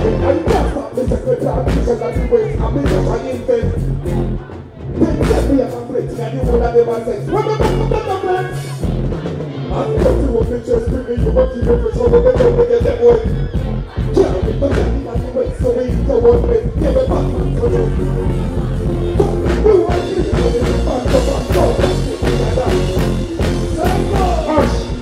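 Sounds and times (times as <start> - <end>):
dancehall music: 0.0 - 25.0.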